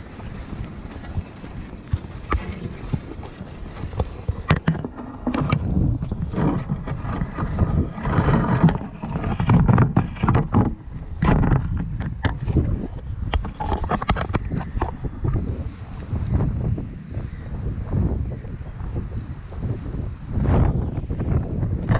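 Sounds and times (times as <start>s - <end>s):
wind buffeting microphone: 0.0s - 21.9s.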